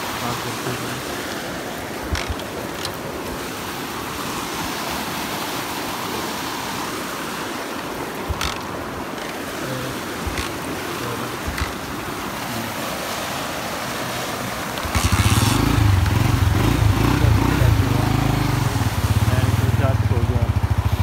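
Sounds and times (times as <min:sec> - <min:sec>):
stream water rushing: 0:00.0 - 0:21.0
short sharp knocks: 0:02.1 - 0:03.0.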